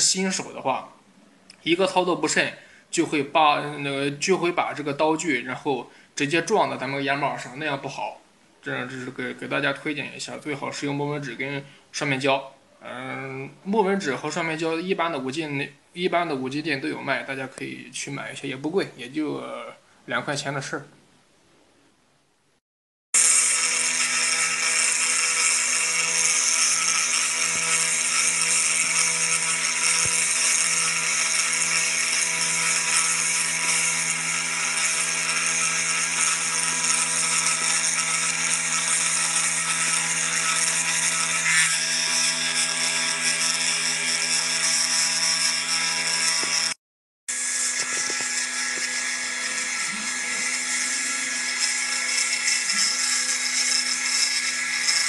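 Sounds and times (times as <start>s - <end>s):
engraving machine spindle whine: 23.2s - 55.0s.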